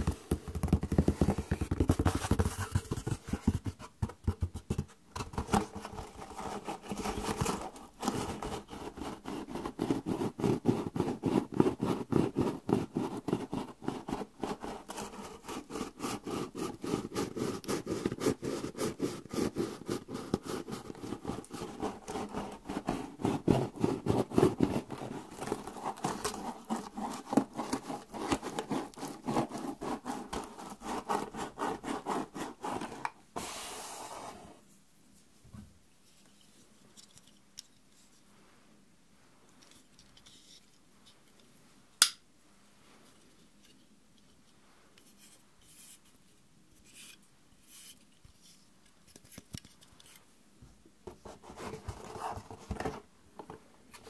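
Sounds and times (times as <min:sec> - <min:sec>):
fast scratching and tapping on box: 0:00.0 - 0:33.1.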